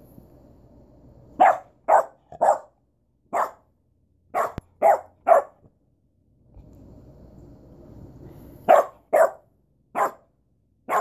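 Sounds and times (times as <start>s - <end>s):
puppy barking: 1.4s - 3.7s, 4.3s - 5.6s, 8.7s - 10.3s.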